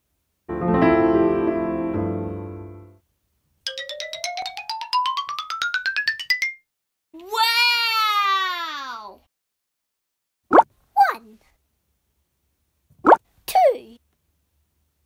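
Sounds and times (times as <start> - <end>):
keyboard chord: 0.5 - 3.0.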